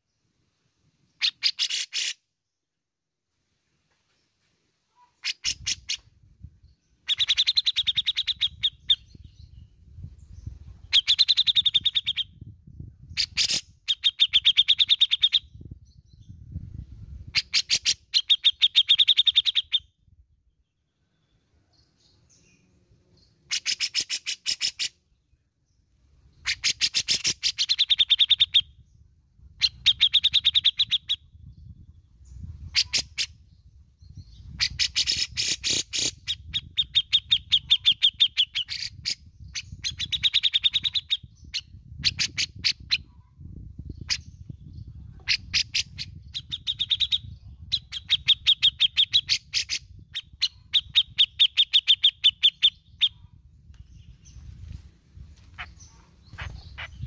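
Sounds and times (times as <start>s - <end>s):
bird rapid chattering notes: 55.6s - 57.0s.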